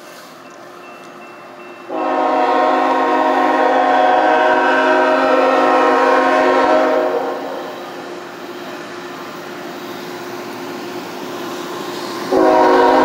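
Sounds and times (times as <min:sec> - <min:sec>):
locomotive air horn blast: 0:01.9 - 0:07.9, 0:12.3 - 0:13.0.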